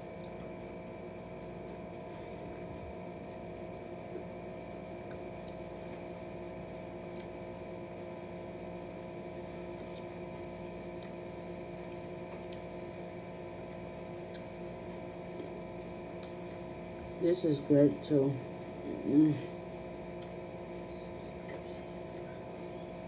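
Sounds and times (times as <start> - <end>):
machine humming: 0.0 - 23.0
faint eating clicks: 14.2 - 14.6, 16.2 - 16.4, 20.1 - 20.4.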